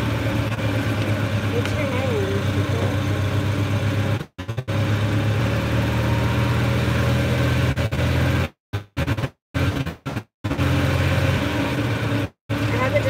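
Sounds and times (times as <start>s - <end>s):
road and wind noise: 0.0s - 4.2s
golf cart motor hum: 0.0s - 8.5s, 10.5s - 13.0s.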